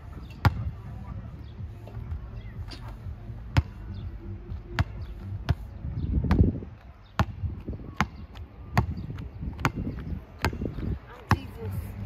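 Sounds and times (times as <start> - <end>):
basketball bouncing on hard court: 0.4 - 0.7, 3.6 - 3.8, 4.7 - 5.6, 6.2 - 6.5, 7.2 - 11.7.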